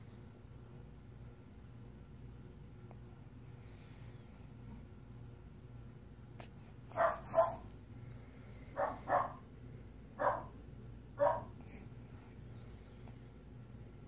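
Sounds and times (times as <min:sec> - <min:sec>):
dog barking: 0:06.9 - 0:07.7, 0:08.8 - 0:09.5, 0:10.2 - 0:10.6, 0:11.2 - 0:11.6.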